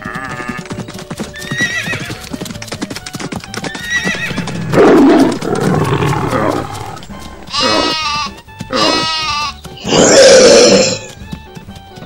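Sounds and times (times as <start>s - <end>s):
horse hooves clip-clopping: 0.0s - 12.0s
horse whinnies: 1.4s - 2.2s, 3.7s - 11.2s.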